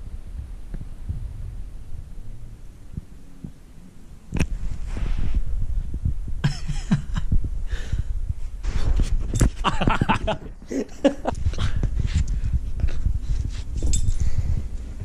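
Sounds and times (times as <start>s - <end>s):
fur rubbing against microphone: 4.4s - 6.4s, 8.3s - 15.0s.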